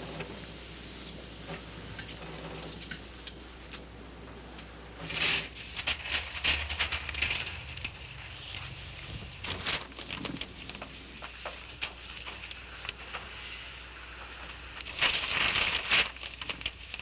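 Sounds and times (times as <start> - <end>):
low steady hum: 0.0 - 15.7
paper rustling: 5.0 - 17.0.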